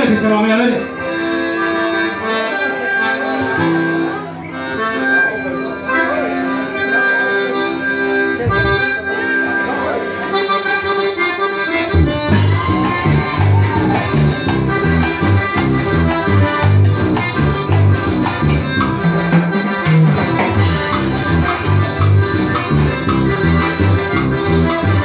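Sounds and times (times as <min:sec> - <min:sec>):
accordions playing: 0:00.0 - 0:25.0
rhythmic bass line: 0:08.3 - 0:09.1, 0:10.7 - 0:25.0.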